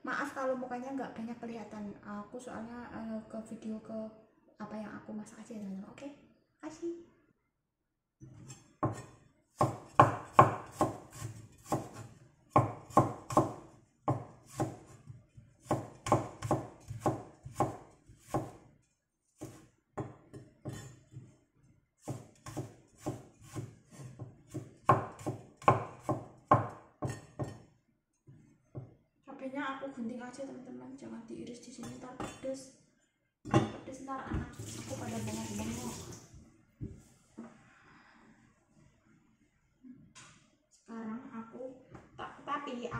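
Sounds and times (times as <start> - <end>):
cleaver chopping on cutting board: 9.6 - 14.9, 15.6 - 18.6, 22.0 - 27.6.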